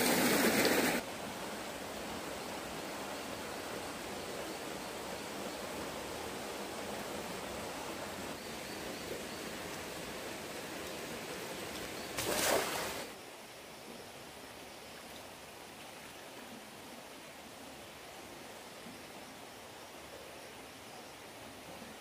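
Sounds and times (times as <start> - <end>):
stream rushing: 0.0 - 13.5.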